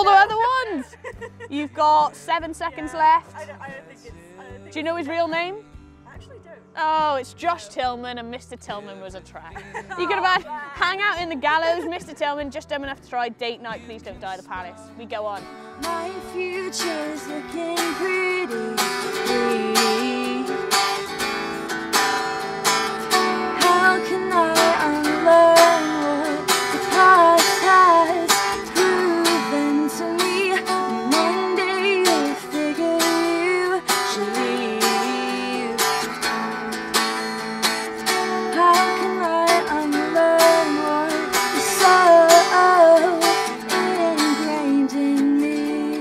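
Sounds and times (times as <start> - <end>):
woman singing: 0.0 - 21.3, 23.1 - 36.3, 38.1 - 46.0
strummed electric guitar: 15.2 - 46.0.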